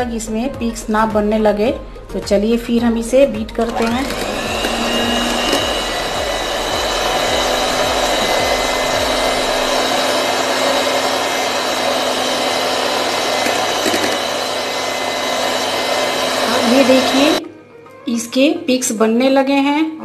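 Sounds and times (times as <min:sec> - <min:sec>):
electric hand mixer whining: 0:03.1 - 0:17.4.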